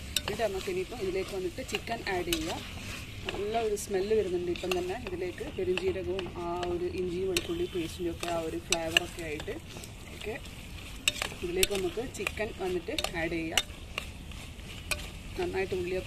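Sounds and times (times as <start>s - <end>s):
spoon clinking against pot: 0.0s - 2.6s, 11.0s - 13.8s
masala sizzling: 0.0s - 16.0s
metal spoon scraping pot: 0.0s - 16.0s.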